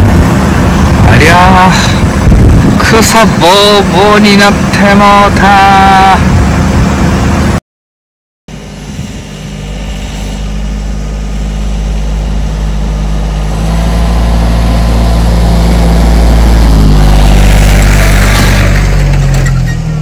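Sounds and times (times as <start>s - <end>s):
tractor engine running: 0.0s - 7.6s, 8.5s - 20.0s.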